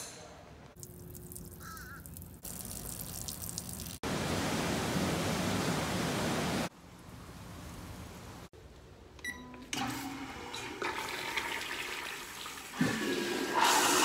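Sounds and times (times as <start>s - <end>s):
surf washing on beach: 4.1s - 6.7s.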